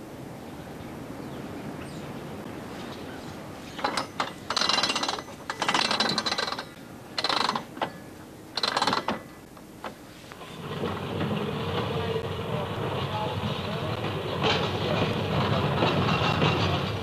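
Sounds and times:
low train rumble: 0.0s - 17.0s
ratchet clicking rapidly: 3.8s - 7.8s, 8.6s - 9.2s.

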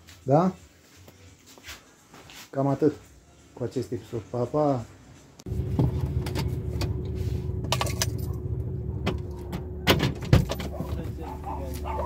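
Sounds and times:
car road and engine rumble: 5.4s - 12.0s.

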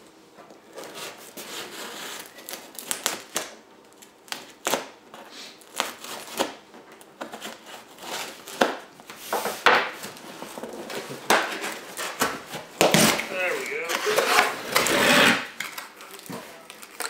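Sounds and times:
knife scraping through tape: 12.9s - 15.6s.

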